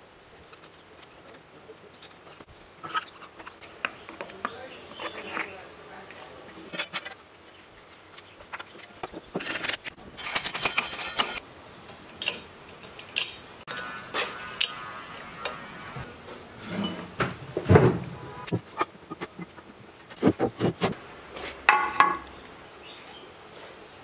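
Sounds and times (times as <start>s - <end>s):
metal parts clicking and tapping: 12.2s - 13.4s.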